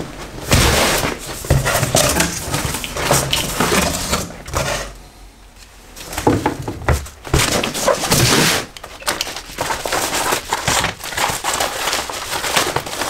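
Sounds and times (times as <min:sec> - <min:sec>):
cardboard flaps scraping: 0:00.0 - 0:04.9, 0:06.0 - 0:13.0
packing tape tearing: 0:07.4 - 0:13.0.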